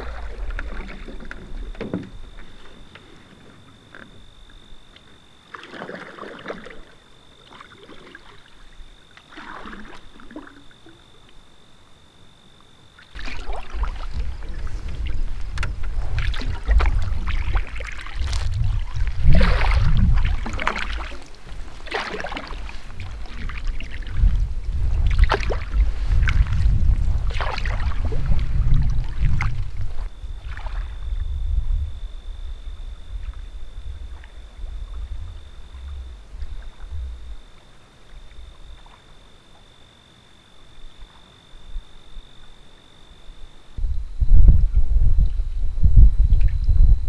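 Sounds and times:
paddle splashing in water: 0:00.0 - 0:04.2, 0:04.9 - 0:11.0, 0:13.0 - 0:31.2
low rumble: 0:13.2 - 0:21.9, 0:22.6 - 0:38.8, 0:43.8 - 0:47.0.

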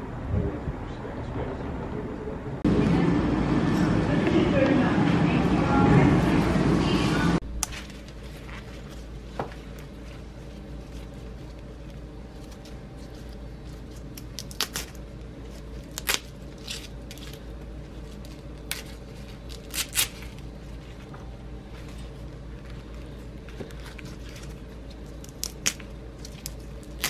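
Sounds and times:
steady low hum: 0:00.0 - 0:27.0
leaves crinkling and squeaking: 0:07.9 - 0:21.0.

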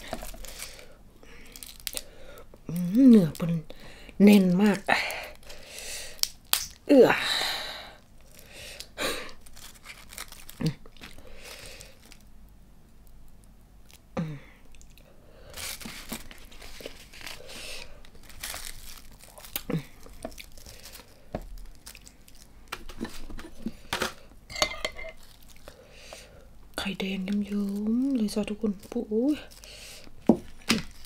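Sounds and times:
seaweed sheet crinkling: 0:00.0 - 0:02.1, 0:09.3 - 0:12.3, 0:15.5 - 0:23.9, 0:25.2 - 0:25.8, 0:27.3 - 0:29.8.

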